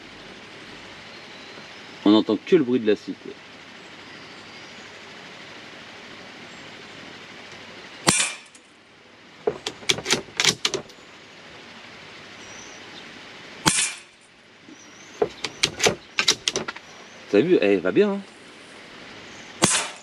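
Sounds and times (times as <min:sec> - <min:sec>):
rifle shots: 0:08.1 - 0:08.6, 0:13.6 - 0:14.2, 0:19.6 - 0:20.0
rifle bolt metallic clicks: 0:09.5 - 0:10.9.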